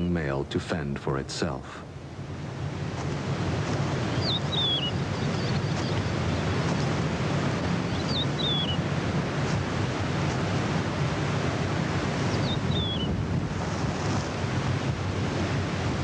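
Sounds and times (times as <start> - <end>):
wind rushing: 2.4 - 16.0
bird calling: 4.1 - 6.5, 7.8 - 8.9, 12.3 - 13.2.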